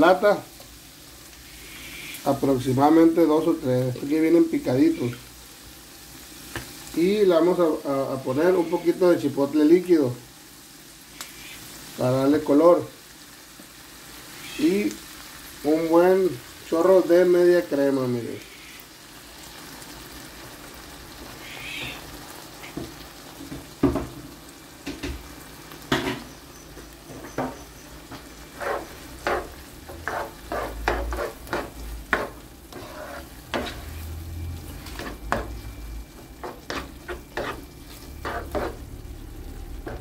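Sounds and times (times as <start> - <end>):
food sizzling: 0.0 - 40.0
spatula scraping frying pan: 27.3 - 39.0
spatula knocking against pan: 29.2 - 32.4.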